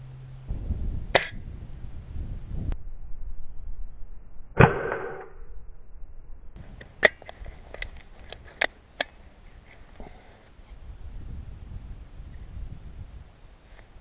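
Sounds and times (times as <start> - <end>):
air pistol shot: 1.1 - 1.4.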